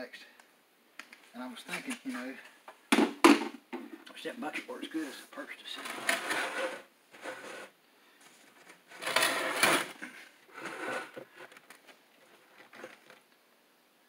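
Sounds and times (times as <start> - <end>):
stiff board rustling and scraping: 5.8 - 13.2.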